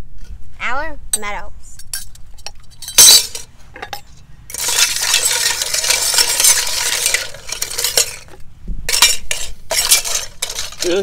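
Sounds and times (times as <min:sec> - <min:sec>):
sharp metal clink: 0:01.8 - 0:04.0
snail shells clattering: 0:04.5 - 0:08.4, 0:09.0 - 0:11.0.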